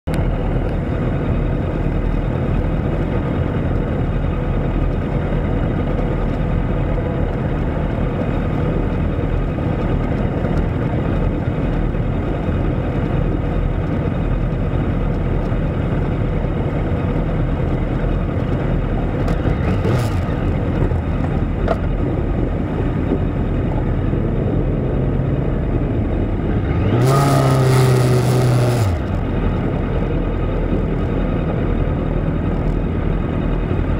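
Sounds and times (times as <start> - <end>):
other motorcycles running: 0.1 - 33.9
motorcycle engine idling: 0.2 - 26.8.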